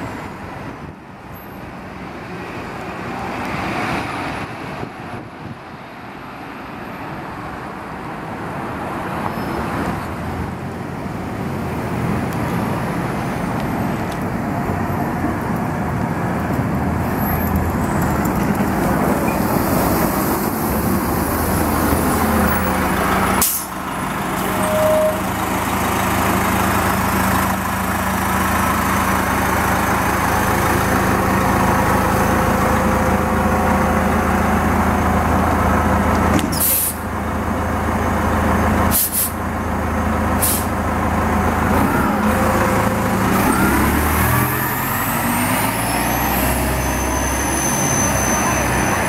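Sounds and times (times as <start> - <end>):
bus engine idling: 10.2 - 46.4
air brakes hissing: 23.4 - 23.8, 36.5 - 37.1, 38.9 - 39.4, 40.4 - 40.8
engine revving with whine: 41.7 - 49.0.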